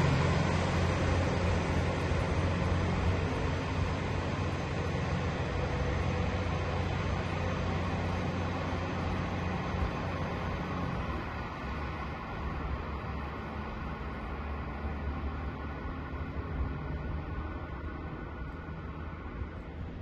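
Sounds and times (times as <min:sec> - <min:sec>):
steady rushing noise: 0:00.0 - 0:20.0
train running hum: 0:00.0 - 0:20.0.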